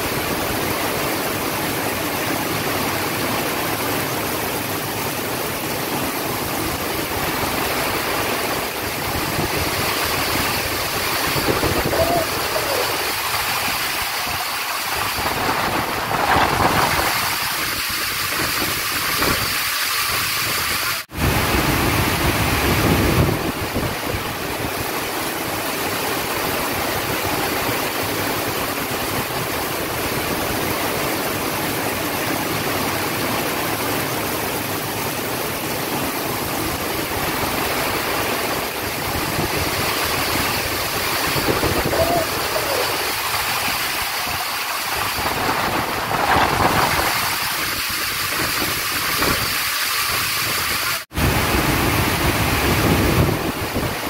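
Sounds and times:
heavy rain on cars and paving: 0:00.0 - 0:54.0.

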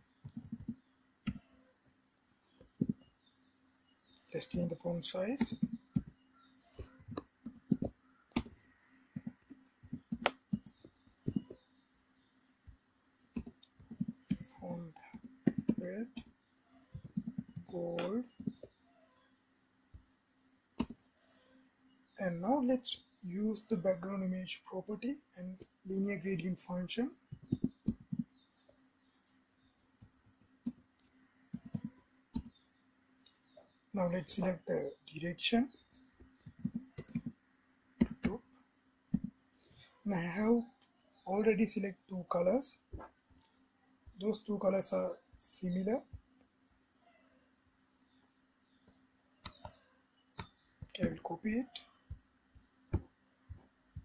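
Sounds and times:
faint steady hum: 0:00.0 - 0:54.0.

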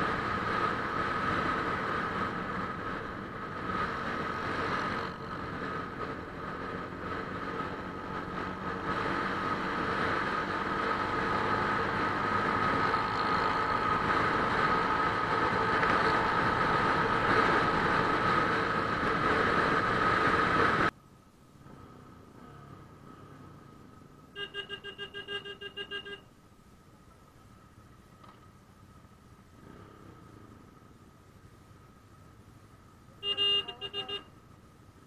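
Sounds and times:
motorcycle engine: 0:00.0 - 0:20.9.

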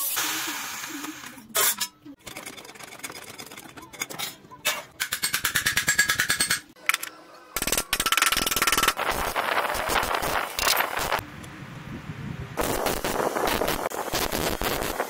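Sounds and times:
steady hiss: 0:12.6 - 0:15.0.

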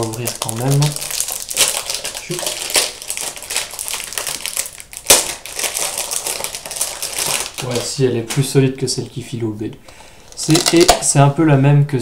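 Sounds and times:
plastic packaging crinkling: 0:00.0 - 0:08.6, 0:10.3 - 0:11.1.

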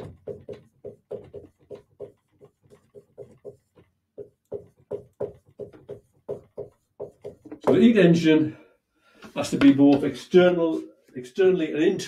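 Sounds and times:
marker writing on whiteboard: 0:00.0 - 0:08.2.

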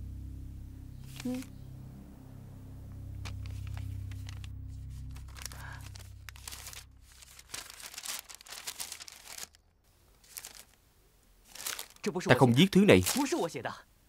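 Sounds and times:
low background hum: 0:00.0 - 0:14.0
paper rustling and crinkling: 0:03.2 - 0:10.8, 0:11.4 - 0:13.6.

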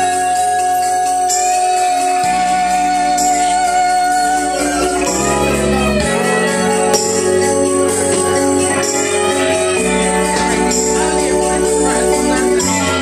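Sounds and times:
karaoke backing music: 0:00.0 - 0:13.0
woman singing into microphone: 0:00.0 - 0:13.0.

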